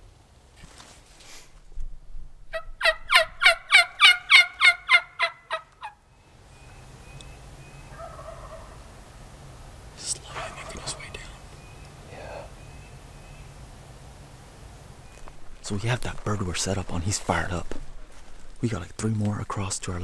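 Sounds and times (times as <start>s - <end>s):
turkey yelps: 2.5s - 6.0s, 7.8s - 9.0s, 10.3s - 11.2s.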